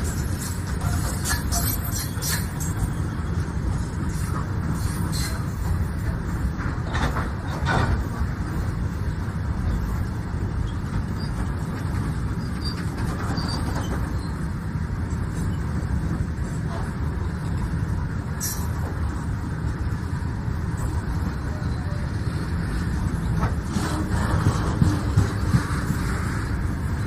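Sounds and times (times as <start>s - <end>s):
train knocks: 0.0s - 8.9s, 9.5s - 14.6s, 22.3s - 27.0s
train coaches rumbling past: 0.0s - 27.0s.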